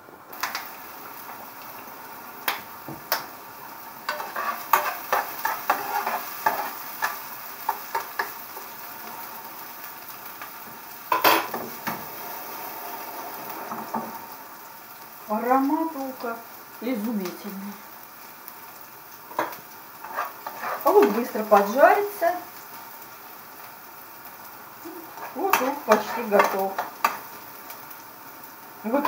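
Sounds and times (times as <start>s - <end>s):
onion sizzling in oil: 0.0s - 29.0s
metal spoon scraping a pan: 4.1s - 8.3s, 19.3s - 21.8s, 25.2s - 27.3s.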